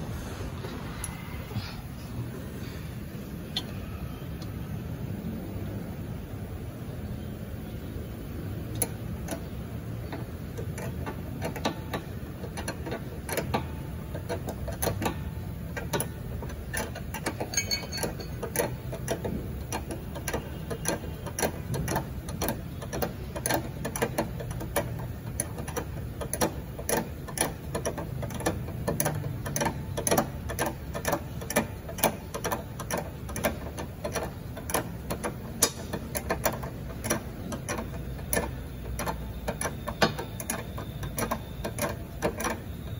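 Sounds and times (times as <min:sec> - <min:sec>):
steady low hum: 0:00.0 - 0:42.9
ratcheting wrench clicking: 0:08.7 - 0:42.9.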